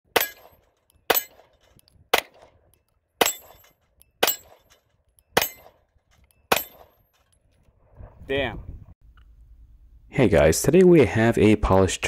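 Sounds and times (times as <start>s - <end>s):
pistol shots: 0.1s - 2.6s, 5.4s - 5.8s, 6.5s - 7.0s.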